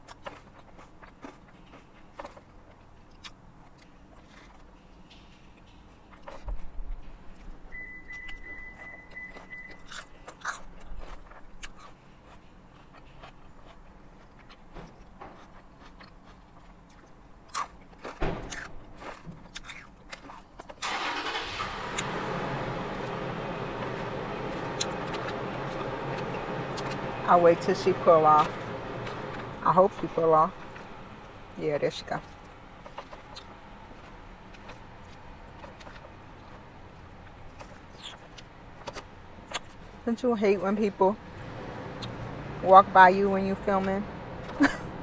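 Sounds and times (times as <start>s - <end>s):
chewing: 0.0s - 27.2s, 27.8s - 31.6s, 32.2s - 40.0s, 41.4s - 42.7s
high electronic beep: 7.7s - 9.8s
car engine running: 20.8s - 45.0s.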